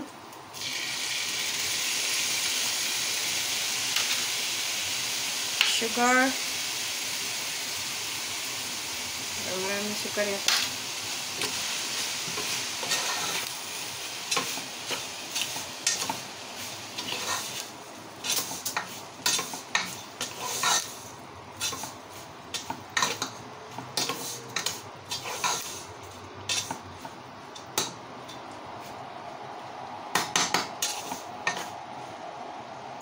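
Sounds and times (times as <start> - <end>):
light sizzle: 0.0 - 33.0
spatula scraping a pot: 17.0 - 17.6, 19.2 - 20.9, 24.0 - 25.8.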